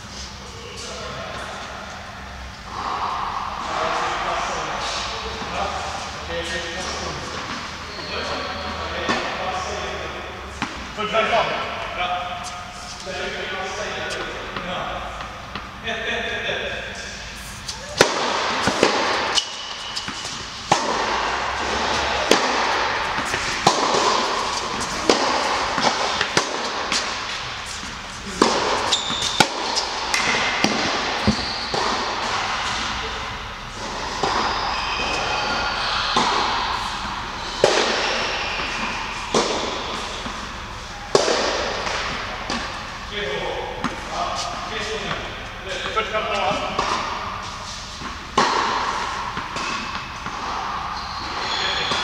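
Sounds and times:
rackets hitting tennis ball: 16.9 - 52.0
tennis ball bouncing on court: 17.9 - 33.0, 33.8 - 35.3, 36.1 - 42.8, 46.5 - 47.2.

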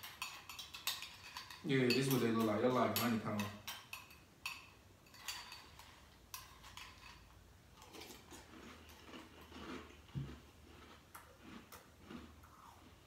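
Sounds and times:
chewing crunchy cereal: 7.8 - 13.0.

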